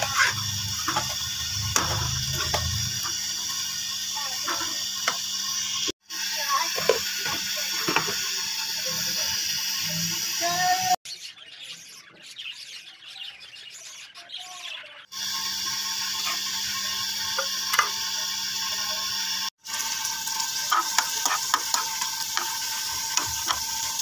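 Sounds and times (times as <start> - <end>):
chillies sizzling in hot oil: 0.0 - 11.0, 15.1 - 24.0
faint birds chirping: 10.5 - 15.2.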